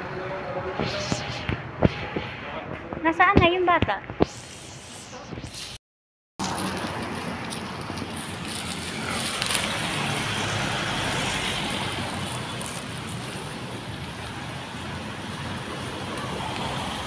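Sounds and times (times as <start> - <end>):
car passing: 6.4 - 17.0.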